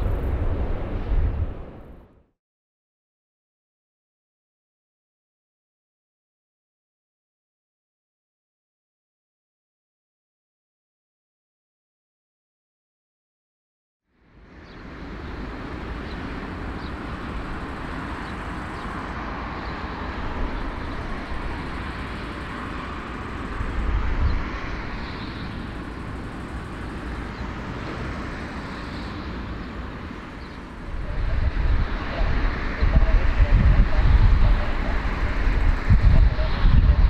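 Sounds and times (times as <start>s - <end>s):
jet engines running: 0.0s - 2.1s, 14.2s - 37.0s
deep rumble: 0.0s - 2.2s, 30.6s - 37.0s.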